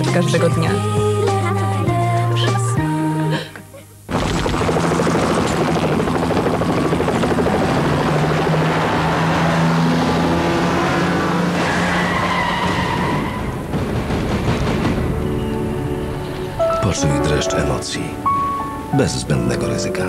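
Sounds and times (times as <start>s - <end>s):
car engine running hard: 4.1s - 14.4s
road noise rushing: 4.2s - 20.0s
tyre squeal: 11.0s - 13.6s.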